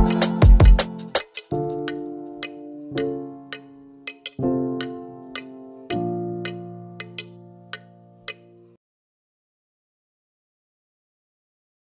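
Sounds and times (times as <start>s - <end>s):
background music with held chords: 0.0s - 8.8s.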